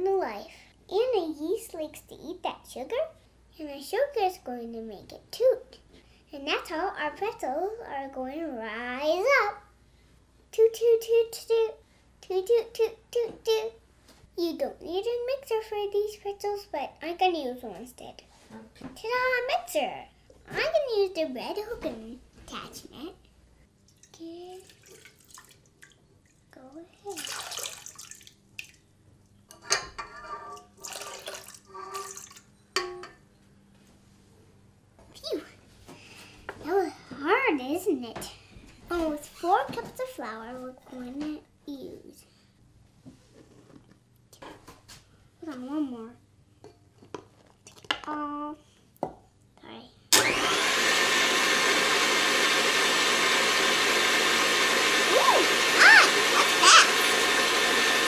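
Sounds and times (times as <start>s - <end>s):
water splashing into steel bowl: 24.0s - 26.0s, 27.1s - 28.8s, 30.8s - 32.4s
stand mixer motor whine: 50.2s - 58.0s.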